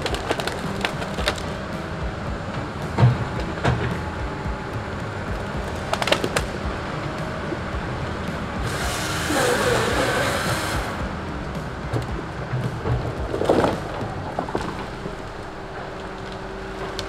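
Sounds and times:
logs clattering together: 0.0 - 1.8, 12.0 - 17.0
diesel engine under load: 0.0 - 17.0.

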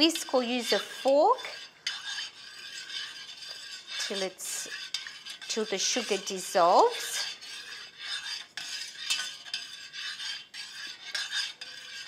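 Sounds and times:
metal spoon scraping saucepan: 0.0 - 12.0.

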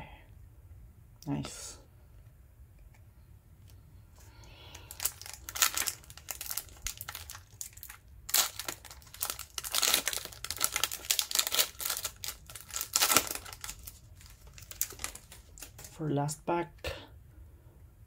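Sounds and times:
foil wrapper crinkling and tearing: 4.7 - 16.0.

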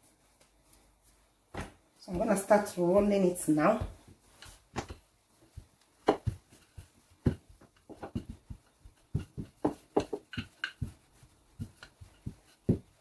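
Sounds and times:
rolling pin knocking on countertop: 5.6 - 13.0.

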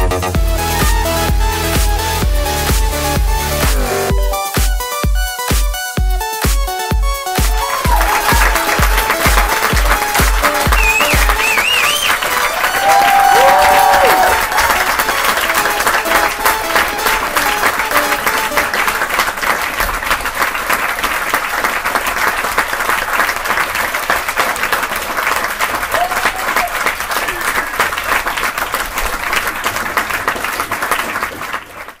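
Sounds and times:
music notes: 0.0 - 20.0
crowd applause: 7.3 - 32.0.

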